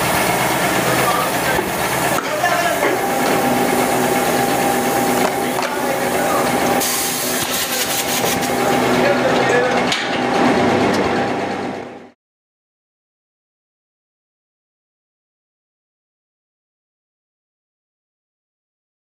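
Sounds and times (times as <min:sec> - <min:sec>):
blow-moulding machine humming: 0:00.0 - 0:12.2.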